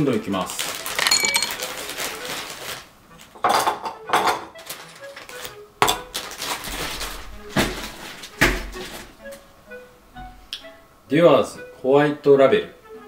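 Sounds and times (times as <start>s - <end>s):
glass bottles clinking: 0.8s - 1.8s, 3.4s - 4.6s.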